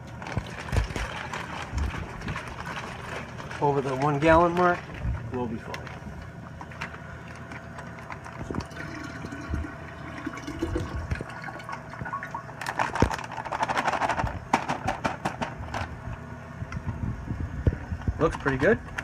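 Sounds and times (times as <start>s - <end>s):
water pouring into glass jug: 8.6s - 12.6s.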